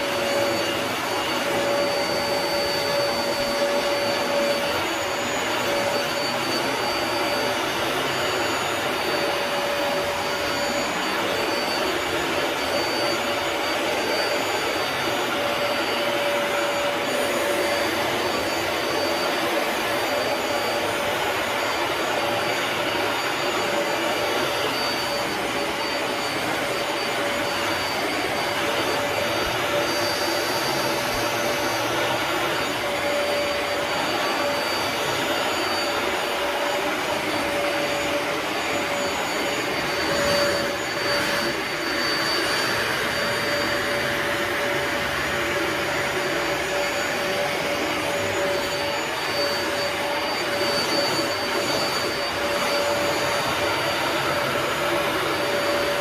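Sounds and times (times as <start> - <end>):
carpet shampooer running: 0.0 - 56.0.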